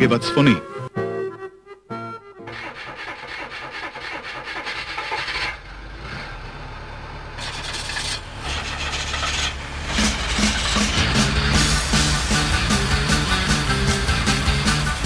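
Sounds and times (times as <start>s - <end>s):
music: 0.0s - 2.7s, 9.9s - 15.0s
truck engine running roughly: 2.5s - 15.0s.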